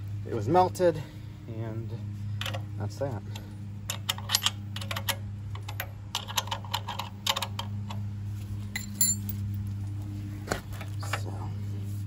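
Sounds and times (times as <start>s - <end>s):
steady low hum: 0.0s - 12.0s
metallic clinks of tools: 8.8s - 9.5s.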